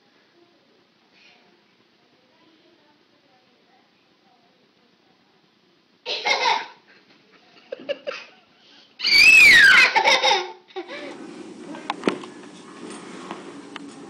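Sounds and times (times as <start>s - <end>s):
low background hum: 0.0s - 14.0s
child laughing and squealing: 9.0s - 10.6s.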